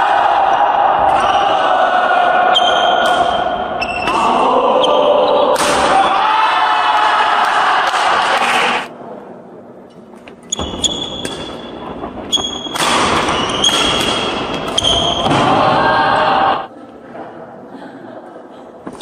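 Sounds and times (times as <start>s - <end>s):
shoes squeaking on floor: 3.8s - 4.1s, 10.4s - 15.2s
racket hitting shuttlecock: 10.6s - 11.7s, 12.4s - 15.5s.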